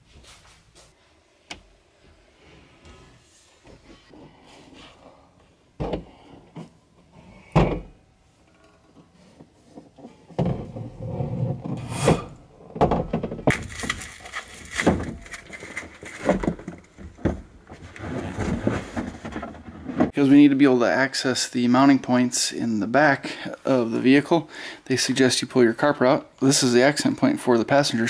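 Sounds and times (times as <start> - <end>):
irregular bumps and rustling: 2.0 - 20.2.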